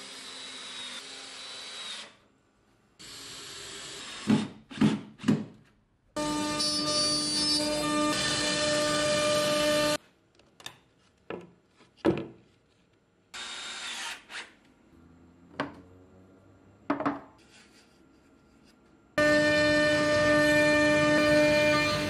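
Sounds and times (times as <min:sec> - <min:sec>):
tool holders knocking and clinking: 0:16.9 - 0:17.3
router spindle whine: 0:19.2 - 0:22.0.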